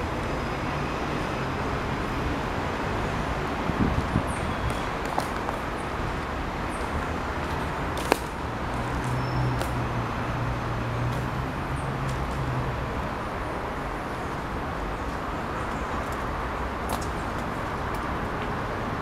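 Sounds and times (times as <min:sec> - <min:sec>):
city traffic rumble: 0:00.0 - 0:19.0.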